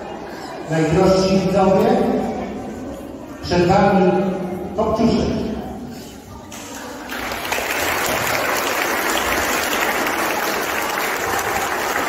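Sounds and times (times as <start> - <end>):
audience applauding: 7.0 - 12.0.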